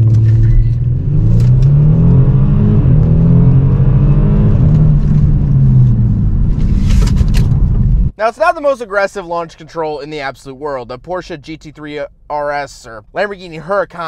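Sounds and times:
car engine accelerating hard: 0:00.0 - 0:08.1.

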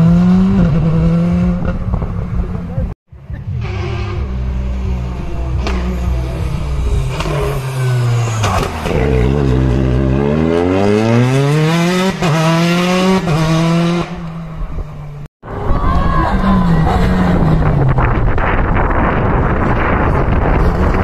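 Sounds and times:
rally car engine revving: 0:00.0 - 0:15.0, 0:16.2 - 0:21.0
second rally car engine: 0:00.0 - 0:15.3.

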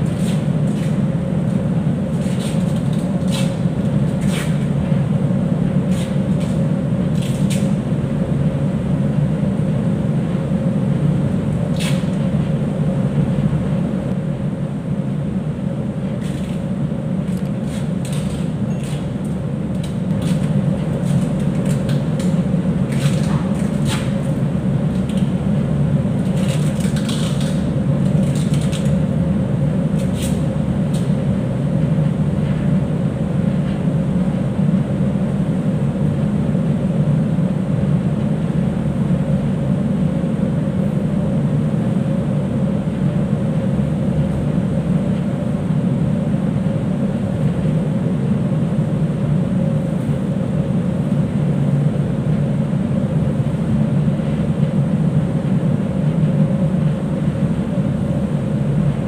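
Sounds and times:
low machinery drone: 0:00.0 - 0:59.0
rope rustling and tool clicks: 0:17.3 - 0:24.2.

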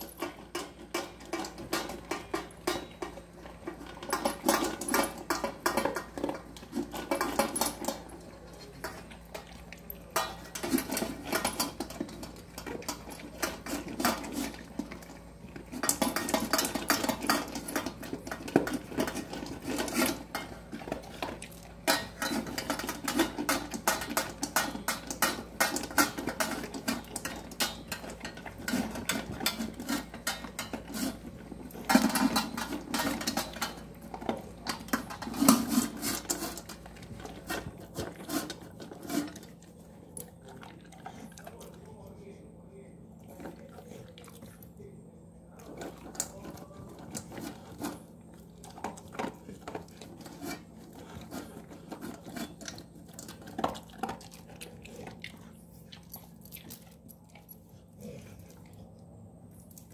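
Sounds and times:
steel bowl clattering: 0:00.0 - 0:39.7
dog crunching and chewing: 0:00.0 - 0:59.9.

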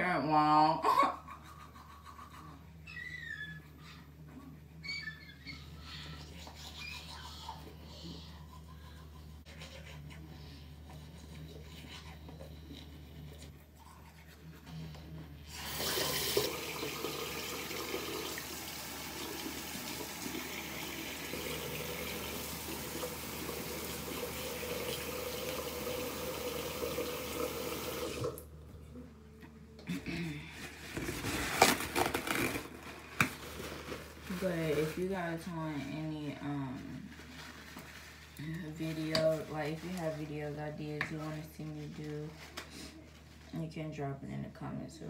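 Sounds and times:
toothbrush scrubbing teeth: 0:05.5 - 0:18.2.

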